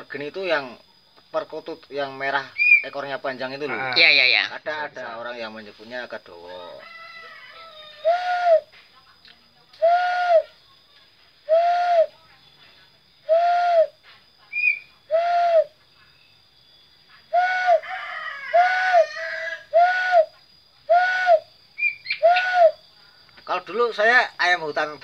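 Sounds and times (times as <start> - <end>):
man hooting like a dove: 8.0 - 8.7, 9.8 - 10.5, 11.5 - 12.2, 13.3 - 14.0, 15.1 - 15.8, 17.4 - 17.8, 18.6 - 19.0, 19.7 - 21.5, 22.1 - 22.8.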